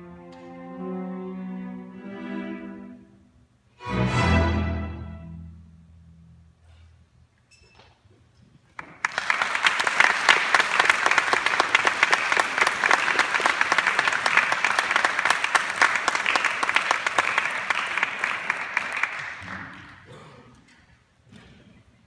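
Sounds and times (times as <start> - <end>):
audience applauding: 8.8 - 20.1.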